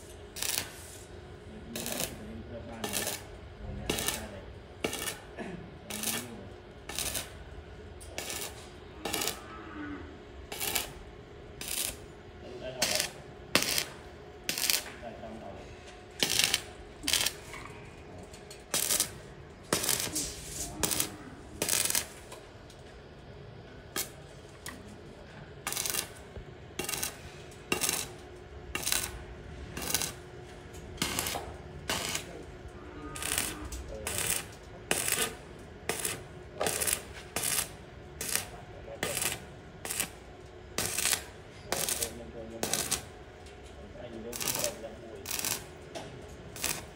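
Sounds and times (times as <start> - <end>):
arc welding bursts: 0.0 - 7.5, 8.1 - 9.4, 10.4 - 12.1, 12.8 - 15.0, 16.1 - 17.5, 18.7 - 22.3, 25.6 - 29.2, 29.8 - 30.3, 31.0 - 32.5, 33.2 - 43.2, 44.2 - 45.8, 46.5 - 46.9.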